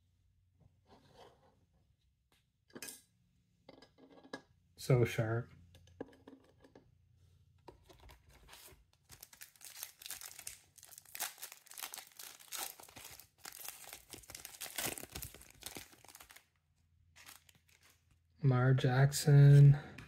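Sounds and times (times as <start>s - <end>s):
foil wrapper tearing and crinkling: 9.0s - 16.5s, 17.2s - 18.0s.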